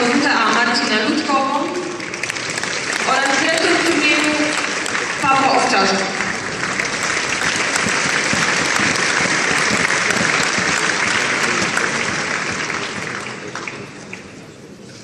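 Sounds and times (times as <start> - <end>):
crowd applauding: 0.0 - 14.5.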